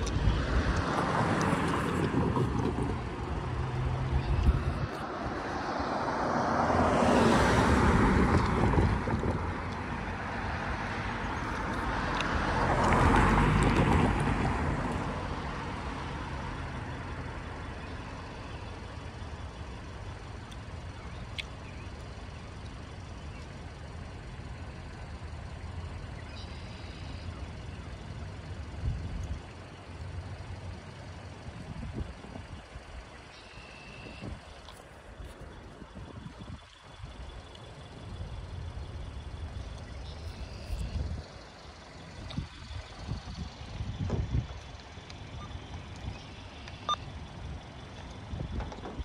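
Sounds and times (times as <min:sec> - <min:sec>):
steady low rumble: 0:00.0 - 0:06.8, 0:34.2 - 0:49.0
vehicles passing: 0:00.0 - 0:49.0.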